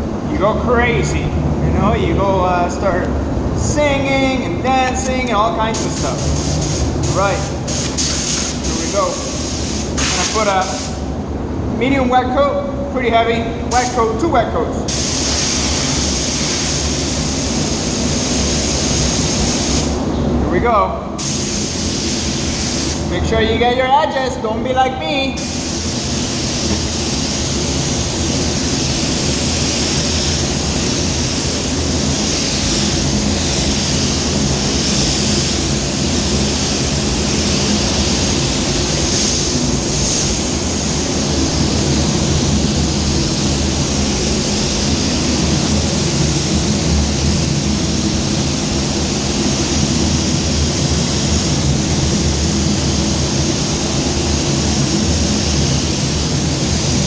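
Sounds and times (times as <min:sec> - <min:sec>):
booth fans humming: 0:00.0 - 0:57.0
spray gun hissing: 0:05.6 - 0:11.1, 0:13.7 - 0:14.0, 0:14.9 - 0:20.1, 0:21.2 - 0:23.2, 0:25.3 - 0:57.0.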